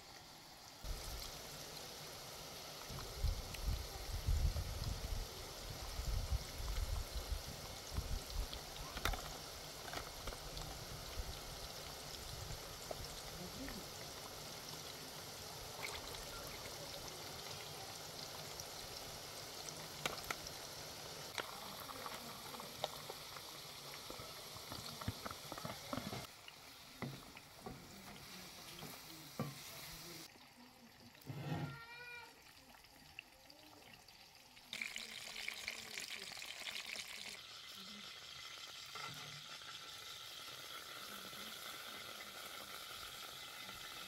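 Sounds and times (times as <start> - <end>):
steady hiss: 0.0 - 30.3
meow-like animal call: 31.4 - 32.4.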